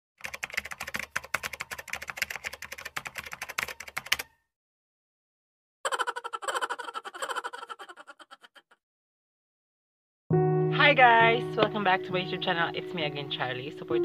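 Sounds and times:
rapid keyboard clicks: 0:00.2 - 0:04.3.

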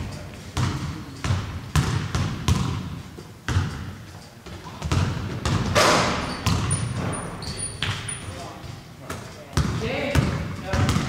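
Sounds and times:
faint high squeaks: 0:06.2 - 0:08.4.

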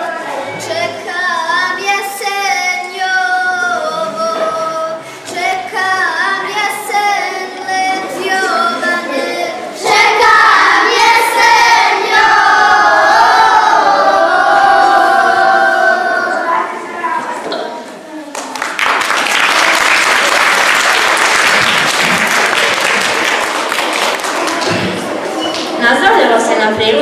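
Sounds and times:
girls singing together: 0:00.0 - 0:16.9.

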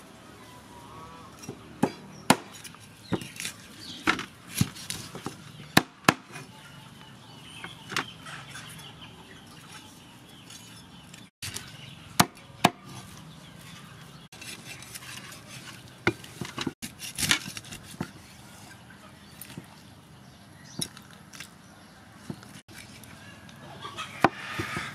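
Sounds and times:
cleaver chopping on wooden block: 0:01.5 - 0:03.4.

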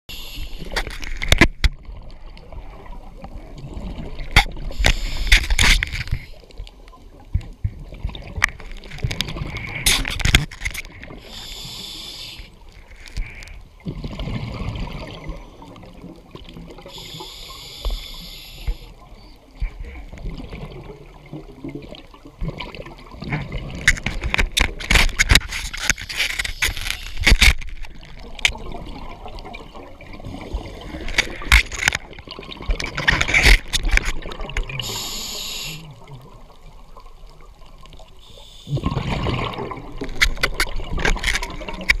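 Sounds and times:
regulator inhalation hiss: 0:00.1 - 0:00.8, 0:04.8 - 0:05.4, 0:11.2 - 0:12.6, 0:16.9 - 0:18.9, 0:34.8 - 0:35.9, 0:38.2 - 0:38.9
exhaled bubbles rushing underwater: 0:01.7 - 0:05.0, 0:13.7 - 0:17.2, 0:18.9 - 0:24.4, 0:27.9 - 0:42.0.

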